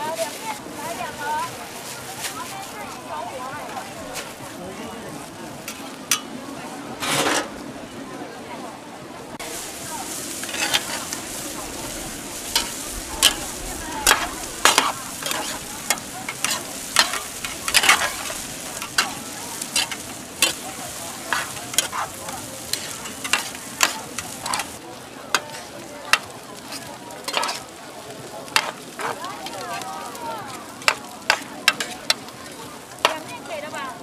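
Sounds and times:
noodles sizzling in a wok: 0.0 - 4.6, 9.4 - 34.0
metal spatula scraping a wok: 7.0 - 7.6, 9.5 - 27.7, 28.5 - 29.8.

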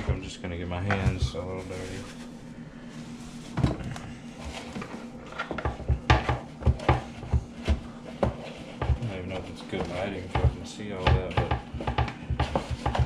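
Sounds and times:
knocks and thumps on board: 5.5 - 13.0.

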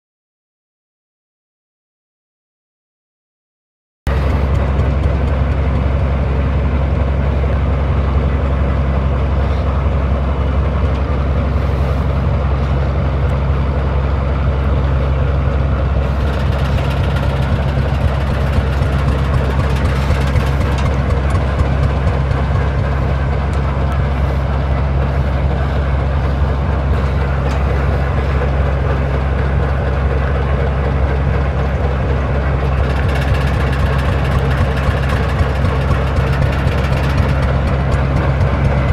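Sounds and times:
gas engine humming: 4.1 - 38.9.

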